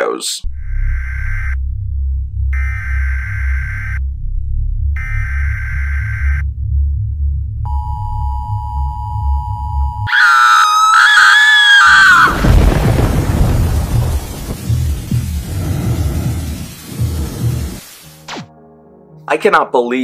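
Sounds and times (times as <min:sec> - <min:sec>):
low pulsing drone: 0:00.4 - 0:10.1
two-tone emergency alert tone: 0:00.6 - 0:01.6, 0:02.6 - 0:04.0, 0:05.0 - 0:06.4, 0:07.7 - 0:10.1
loud wavering scream: 0:10.1 - 0:12.8
tv static hiss: 0:12.2 - 0:18.4
low thumps: 0:12.3 - 0:18.5.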